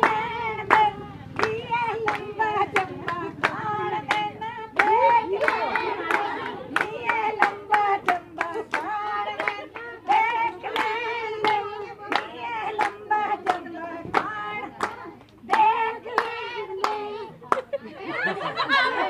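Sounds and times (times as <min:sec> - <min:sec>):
hand claps: 0:00.0 - 0:17.7
women singing: 0:00.0 - 0:19.0.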